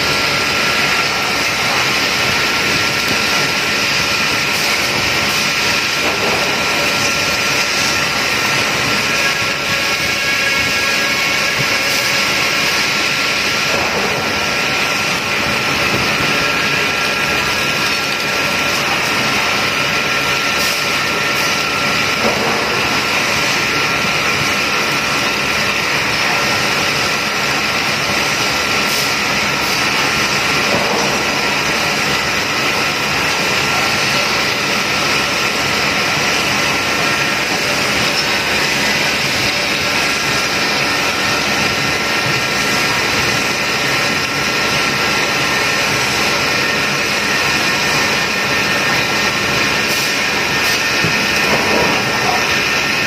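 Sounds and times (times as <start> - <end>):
coolant spraying and splashing: 0.0 - 53.0
milling machine cutting: 0.0 - 53.0.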